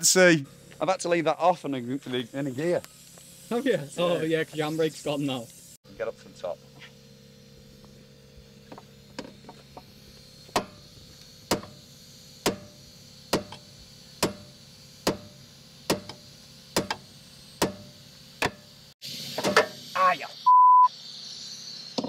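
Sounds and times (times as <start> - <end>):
hammer striking metal wheel rim: 10.5 - 10.8, 11.5 - 11.8, 12.4 - 17.0, 17.6 - 18.7.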